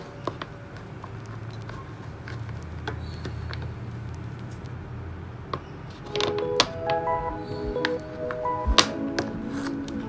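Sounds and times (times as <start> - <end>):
tape rolls tapping on desk: 6.0 - 7.0.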